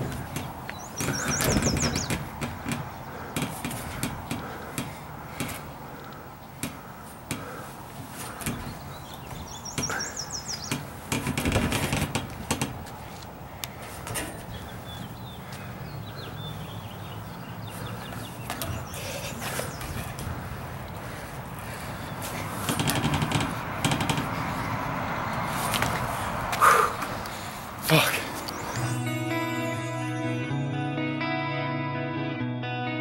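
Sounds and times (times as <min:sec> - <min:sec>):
bird trilling: 0:00.7 - 0:02.3, 0:08.7 - 0:10.8.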